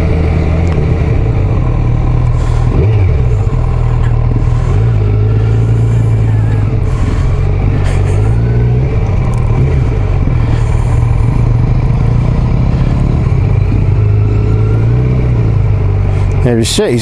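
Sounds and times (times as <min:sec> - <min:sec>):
motorcycle engine at low revs: 0:00.0 - 0:17.0.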